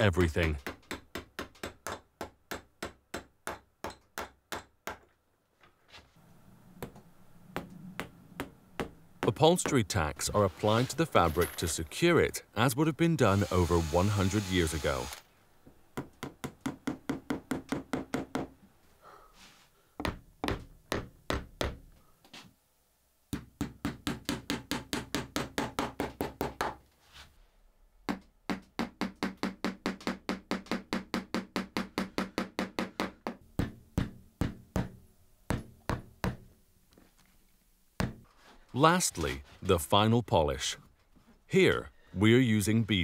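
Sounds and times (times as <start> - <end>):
hammer tapping nails into wood: 0.4 - 5.1.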